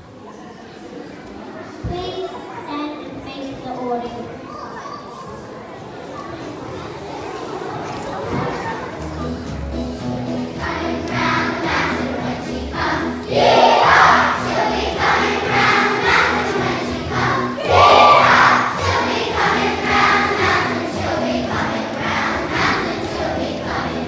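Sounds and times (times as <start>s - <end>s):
children singing: 10.4s - 24.0s.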